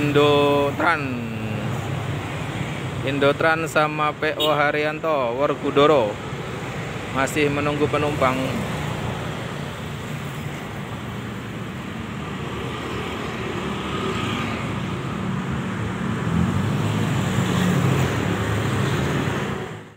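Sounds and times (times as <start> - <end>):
motorcycle and car engines passing: 6.2 - 19.9
group of motorcycles riding past: 11.9 - 19.8.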